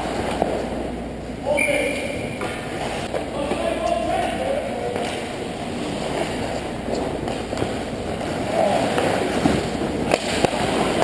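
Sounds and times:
skates scraping ice: 1.9 - 11.0
hockey sticks and puck knocking: 4.8 - 11.0.

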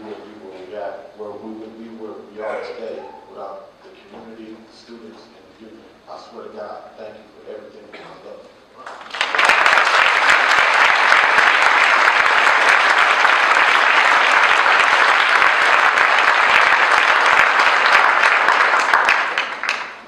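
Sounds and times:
audience applauding: 8.8 - 20.0.

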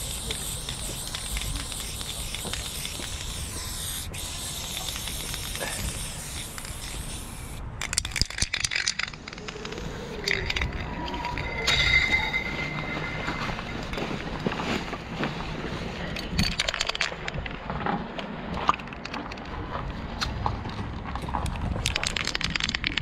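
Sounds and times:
sharp clicks and rattles: 0.0 - 3.4, 4.4 - 11.5, 16.2 - 18.0, 21.0 - 23.0
spray paint can hissing: 0.0 - 12.4.

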